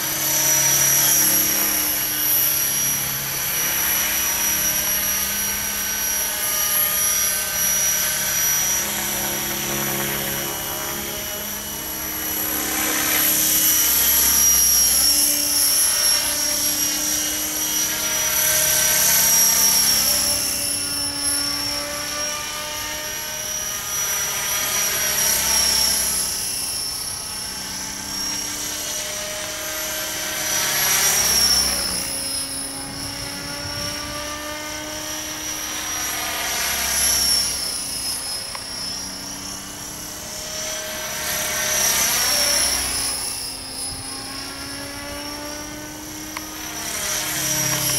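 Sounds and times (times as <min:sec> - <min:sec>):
model helicopter whine: 0:00.0 - 0:47.9
rotor blades chopping: 0:23.4 - 0:47.9.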